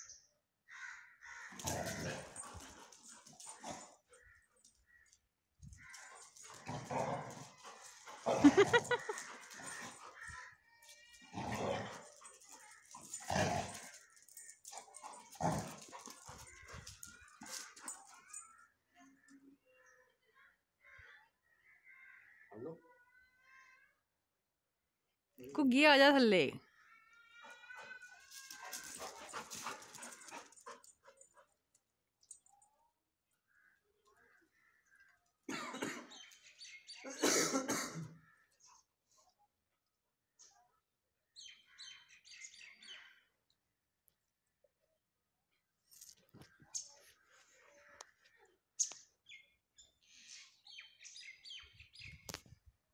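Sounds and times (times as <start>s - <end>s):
dogs growling: 1.5s - 4.1s, 5.9s - 10.3s, 11.2s - 18.2s, 28.4s - 31.3s.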